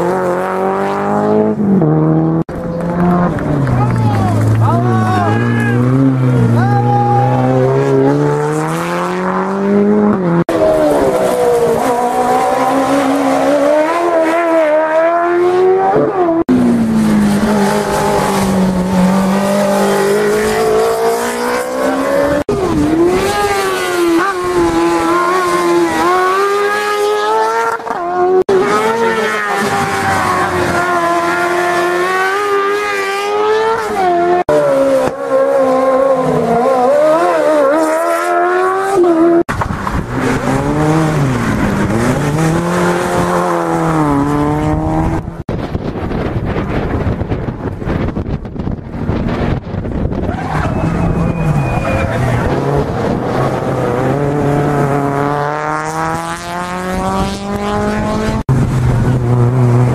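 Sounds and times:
race car engines revving: 0:00.0 - 0:59.9
tyre squeal: 0:50.2 - 0:52.6.

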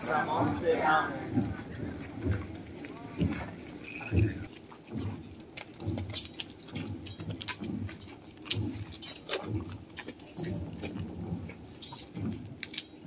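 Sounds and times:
low background murmur: 0:00.0 - 0:13.0
censer chains clinking: 0:06.0 - 0:13.0.

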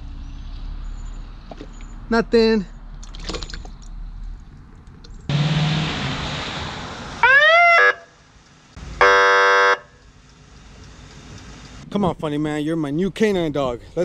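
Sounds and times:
police siren whoop: 0:07.2 - 0:08.1
horn-like siren blast: 0:07.2 - 0:08.2, 0:09.0 - 0:10.0.

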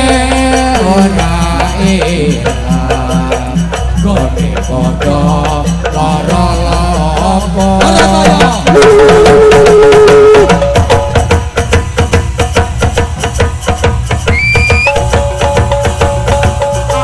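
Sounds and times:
drum and percussion beat: 0:00.0 - 0:17.0.

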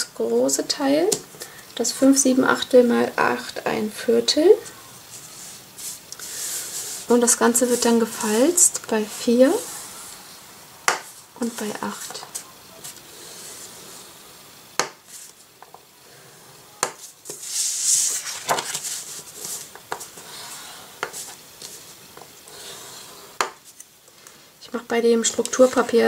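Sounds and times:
rustling scrape of cardstock: 0:05.1 - 0:07.9, 0:17.0 - 0:21.8.

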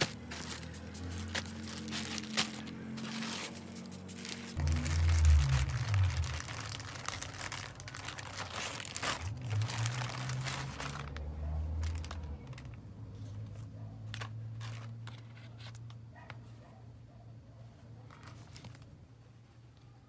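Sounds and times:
plastic mailer crinkling: 0:00.0 - 0:12.8, 0:14.1 - 0:15.8.

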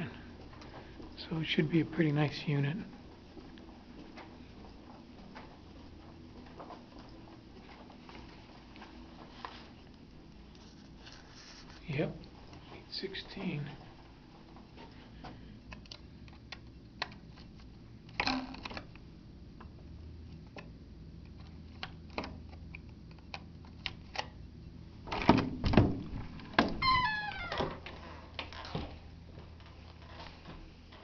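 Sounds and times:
door creaking open: 0:25.1 - 0:29.1.

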